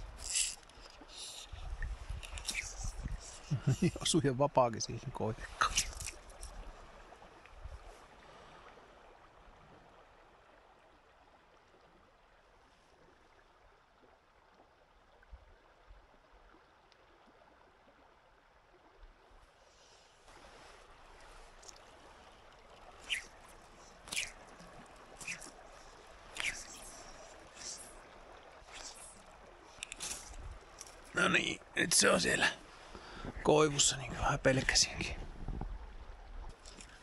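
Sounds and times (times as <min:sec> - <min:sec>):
stream gurgling: 0:00.0 - 0:37.0
short sharp swishes: 0:24.1 - 0:24.5, 0:25.2 - 0:25.6, 0:26.4 - 0:26.9.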